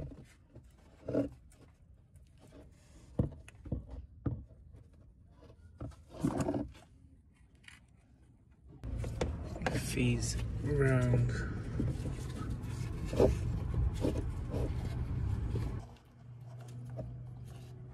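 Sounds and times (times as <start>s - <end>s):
cable handling knocks and clicks: 8.8s - 10.6s
rough rubbing sound: 8.8s - 17.9s.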